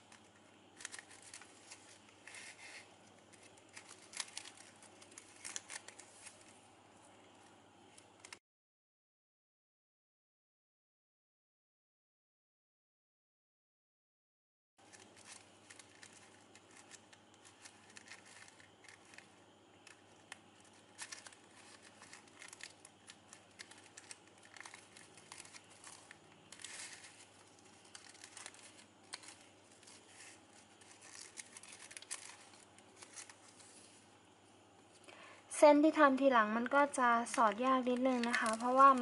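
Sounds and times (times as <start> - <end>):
plastic ribbon crinkling: 0.0 - 6.6, 14.8 - 34.0, 37.2 - 39.0.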